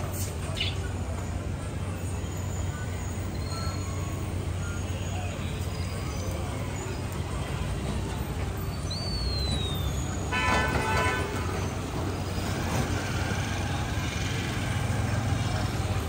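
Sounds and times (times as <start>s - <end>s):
street traffic rumble: 0.0s - 16.0s
vehicle horn honking: 10.3s - 11.7s.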